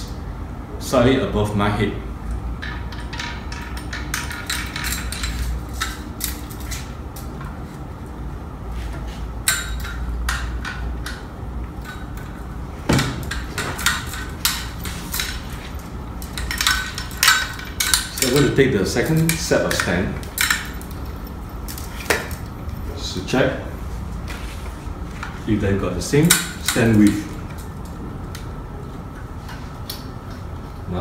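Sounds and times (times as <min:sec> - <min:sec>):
low steady hum: 0:00.0 - 0:31.0
metal stand clicks and rattles: 0:02.6 - 0:07.3, 0:09.4 - 0:22.6, 0:26.2 - 0:27.7.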